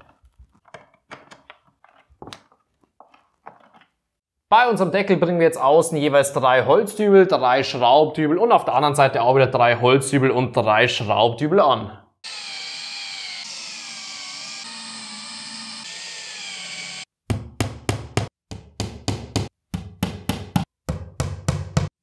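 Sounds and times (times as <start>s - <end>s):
cordless drill whining: 12.2s - 17.1s.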